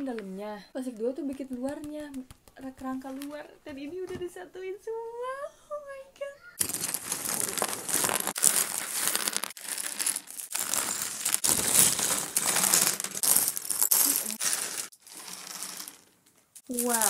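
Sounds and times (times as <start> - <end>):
plastic bags crinkling: 6.6 - 17.0
plastic pieces clicking: 6.6 - 17.0.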